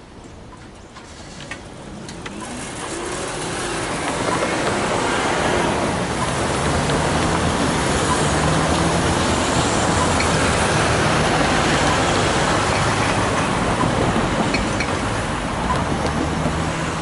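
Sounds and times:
cars driving over level crossing: 0.6 - 17.0.

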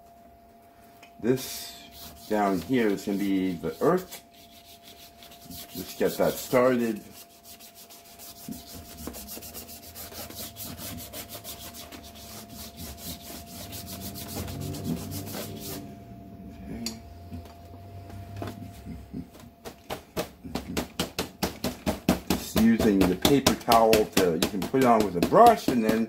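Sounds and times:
bristle brush scrubbing paper: 1.4 - 15.8, 22.3 - 26.0.

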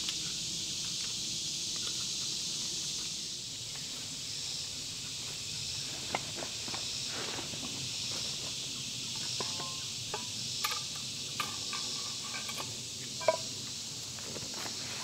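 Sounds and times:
insects buzzing: 0.0 - 15.0
clinks of camp cooking gear: 9.2 - 13.5.

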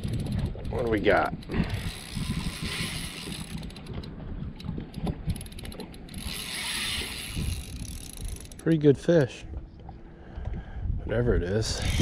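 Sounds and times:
fishing reel clicking rapidly: 0.0 - 8.8, 11.6 - 12.0.

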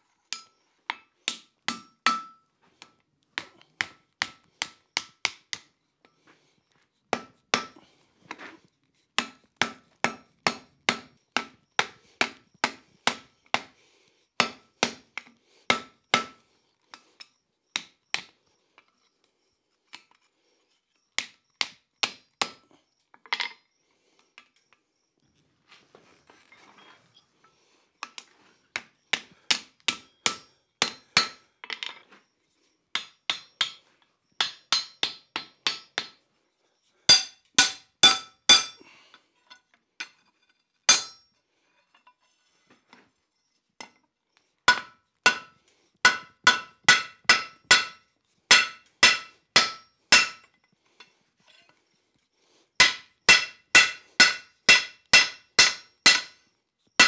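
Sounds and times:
hammer striking iron on anvil: 1.7 - 2.4, 7.2 - 7.7, 29.5 - 31.4, 34.4 - 36.1, 37.1 - 38.8, 40.9 - 41.3, 44.7 - 45.5, 46.1 - 50.5, 52.8 - 56.4.

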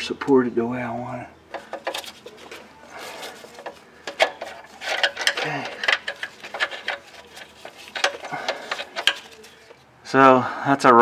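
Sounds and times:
wrench metallic clicks and clinks: 3.2 - 9.4.

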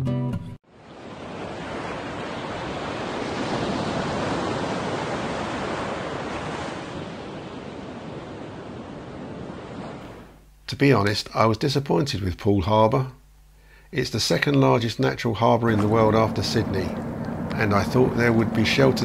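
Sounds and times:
waves breaking: 0.7 - 10.4, 15.4 - 19.0.

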